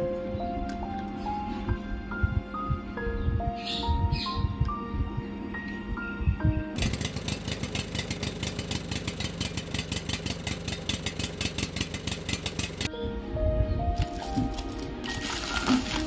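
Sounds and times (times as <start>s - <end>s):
background music: 0.0s - 6.8s, 12.9s - 16.0s
diesel engine idling chugging: 6.8s - 12.9s.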